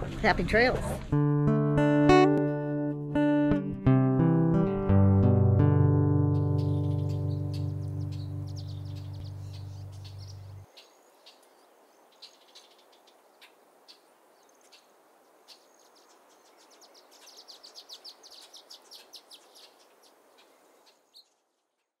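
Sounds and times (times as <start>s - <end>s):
soft outdoor ambience: 0.0s - 22.0s
music track: 1.1s - 10.6s
small birds chirping: 5.9s - 22.0s.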